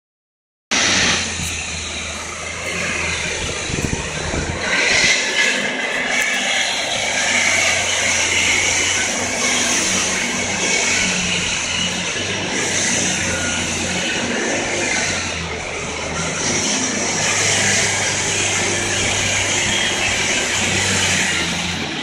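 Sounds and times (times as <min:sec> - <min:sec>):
vehicles passing on street: 0:00.7 - 0:22.0.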